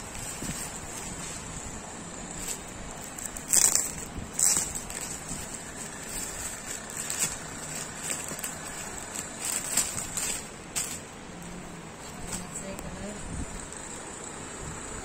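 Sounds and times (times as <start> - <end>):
plastic packaging crinkling: 2.3 - 12.6.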